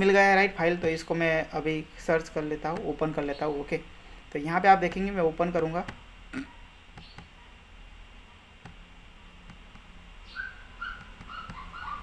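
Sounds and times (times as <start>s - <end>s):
computer mouse clicks: 7.0s - 7.3s, 9.4s - 9.9s, 11.0s - 11.7s.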